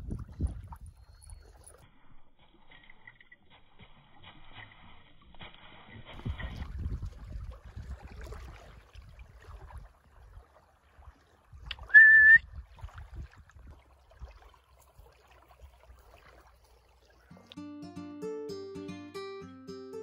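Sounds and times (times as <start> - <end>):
wind rumble on microphone: 0.0 - 1.8, 6.1 - 10.5, 11.1 - 14.4
person whistling: 11.9 - 12.4.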